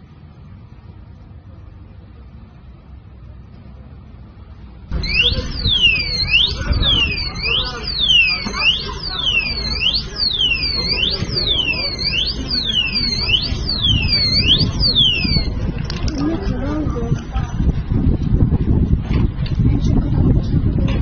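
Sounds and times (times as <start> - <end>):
crowd voices: 0.0 - 21.0
street noise: 0.0 - 21.0
ambulance siren: 4.9 - 15.6.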